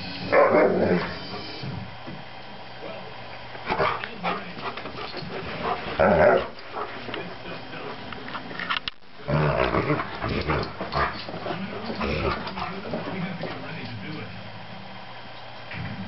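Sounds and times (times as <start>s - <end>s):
dog growling playfully: 3.7s - 8.2s, 9.2s - 13.6s.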